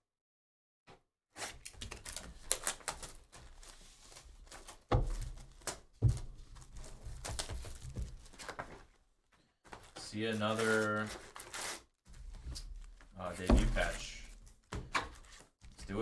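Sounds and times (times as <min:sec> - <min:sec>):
plastic shrink wrap crackling: 0:01.6 - 0:05.9, 0:06.6 - 0:08.8, 0:09.7 - 0:11.9
cardboard box thumps: 0:13.4 - 0:14.1.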